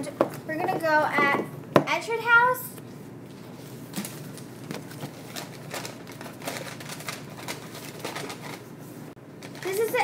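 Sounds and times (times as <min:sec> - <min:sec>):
plastic bag crinkling: 0:04.0 - 0:08.7, 0:09.4 - 0:10.0.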